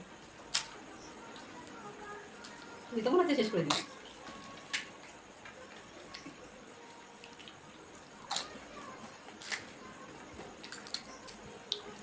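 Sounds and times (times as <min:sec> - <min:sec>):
crisp cracks of fried shells: 0:09.3 - 0:09.7.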